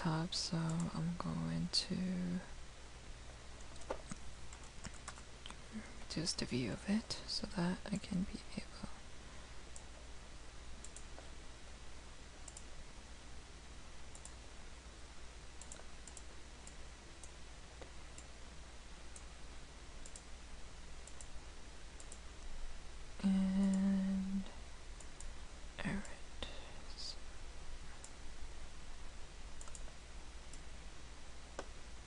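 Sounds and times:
low steady hum: 0.0 - 32.0
faint computer mouse clicks: 10.8 - 11.3, 12.4 - 12.7, 14.1 - 14.4, 15.6 - 18.3, 22.0 - 22.5, 29.6 - 29.9.

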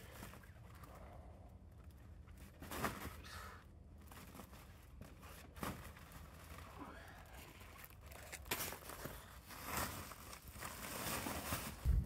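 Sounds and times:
plastic sack crinkling: 4.0 - 12.0.

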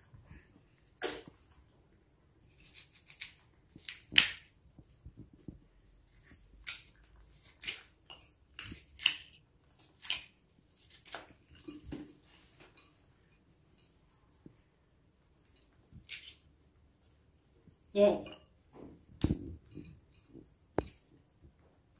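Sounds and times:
knife scraping cuts on fruit: 2.5 - 4.4.

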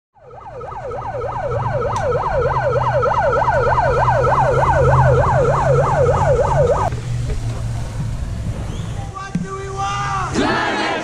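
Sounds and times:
electronic yelp siren: 0.2 - 6.9
low hum: 0.2 - 9.0.

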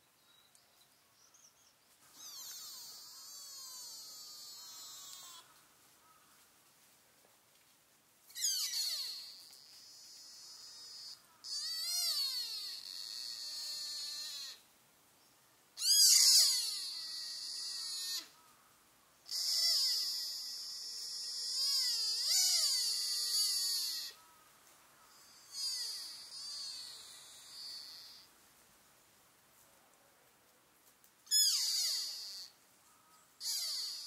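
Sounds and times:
deer fawn bleating: 2.1 - 6.2, 8.3 - 14.7, 15.8 - 18.5, 19.2 - 24.4, 25.1 - 28.3, 31.3 - 32.6, 33.4 - 34.0.

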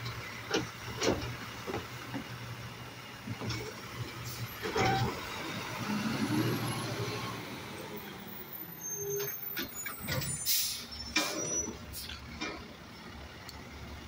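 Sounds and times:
diesel truck engine revving: 3.8 - 8.5
air brakes hissing: 8.7 - 12.2.

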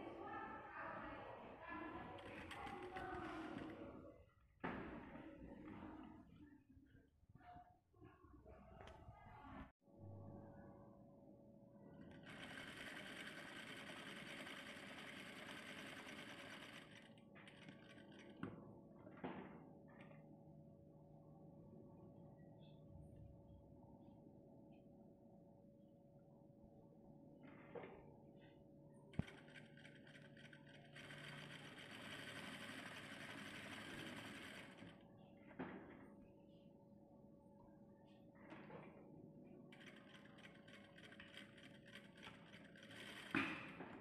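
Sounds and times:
sewing machine stitching: 12.0 - 18.5, 29.2 - 35.0, 39.7 - 43.8.

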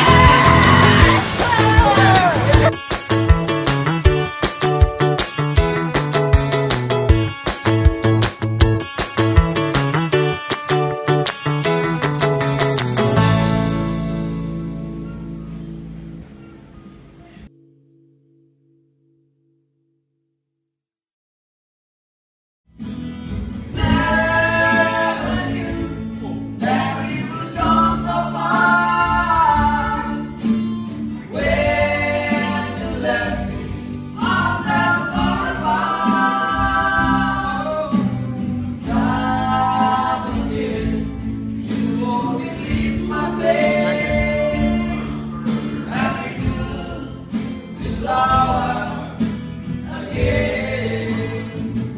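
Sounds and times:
people singing: 0.0 - 2.7, 23.7 - 30.5, 31.2 - 51.9
acoustic guitars strummed: 0.0 - 18.8, 22.7 - 51.9.

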